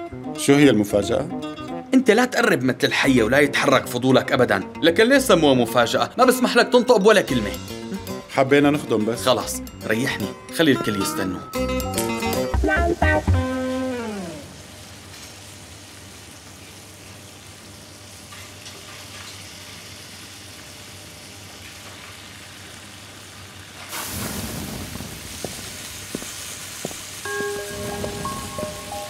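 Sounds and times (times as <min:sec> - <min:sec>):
food sizzling in frying pan: 0:13.6 - 0:29.0.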